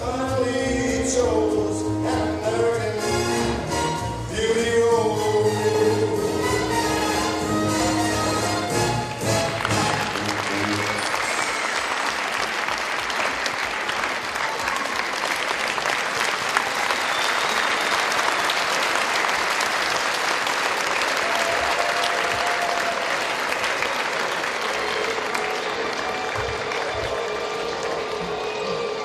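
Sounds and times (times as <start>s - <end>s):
large audience clapping: 8.8s - 29.0s.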